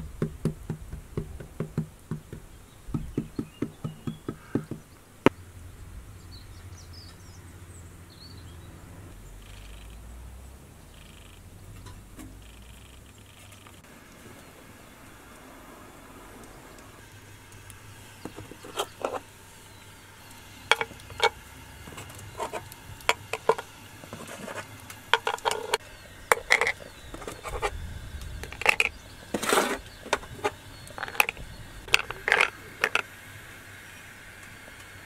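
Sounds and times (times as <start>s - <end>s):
short scrape: 23.3s - 33.0s.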